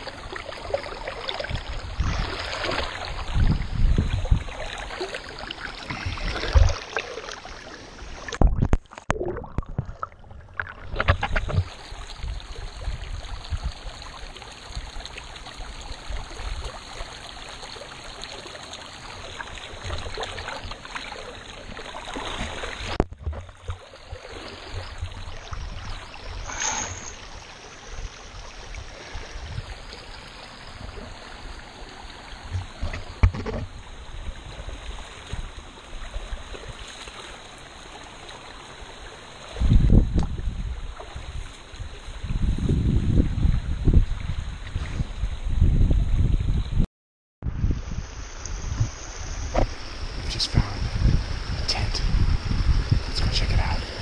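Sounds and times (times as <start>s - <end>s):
feet splashing through water: 0.0s - 12.1s, 14.0s - 25.5s, 34.6s - 39.6s
creek water running: 0.0s - 45.3s, 47.6s - 54.0s
low rumble on microphone: 1.4s - 4.9s, 39.6s - 54.0s.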